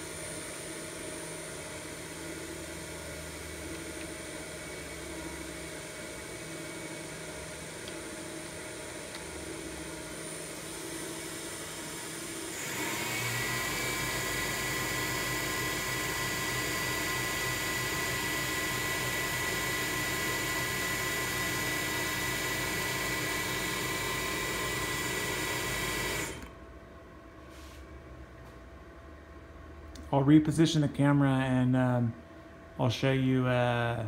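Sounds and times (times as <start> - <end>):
mill spindle high whine: 0.0 - 26.6.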